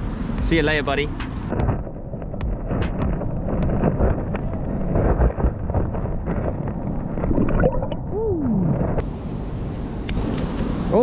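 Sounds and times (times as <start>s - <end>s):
underwater sloshing and gurgling: 2.1s - 9.0s.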